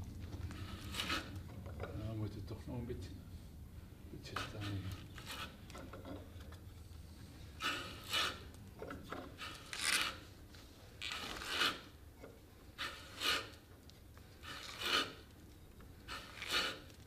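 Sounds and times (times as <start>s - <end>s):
auger bit rasping through wood: 0.4s - 2.0s, 4.2s - 6.3s, 7.6s - 10.3s, 11.0s - 12.0s, 12.7s - 13.7s, 14.4s - 15.3s, 15.9s - 17.0s.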